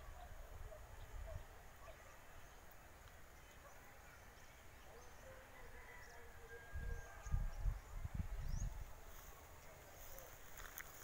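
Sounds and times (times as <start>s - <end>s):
wind buffeting microphone: 6.7s - 9.1s.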